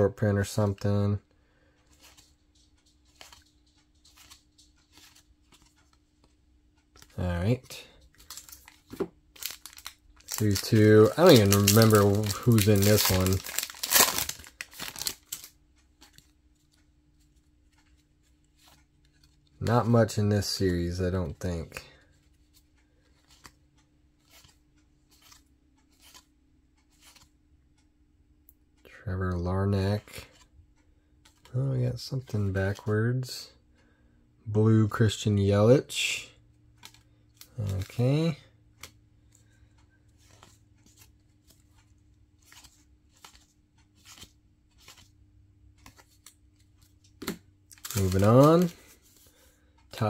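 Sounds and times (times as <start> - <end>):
low steady hum: 0.0 - 50.0
soft flicks of cards sliding: 1.8 - 6.4, 24.2 - 27.3, 40.2 - 45.1, 45.8 - 47.2.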